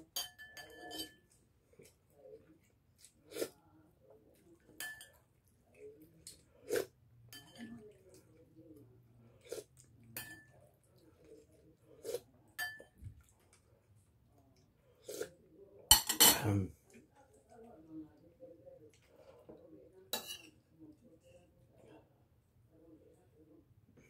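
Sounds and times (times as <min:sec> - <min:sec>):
metal spoon clinking on ceramic: 0:00.0 - 0:01.3, 0:04.8 - 0:05.2, 0:07.3 - 0:07.9, 0:10.2 - 0:10.6, 0:12.6 - 0:13.0, 0:20.2 - 0:20.6.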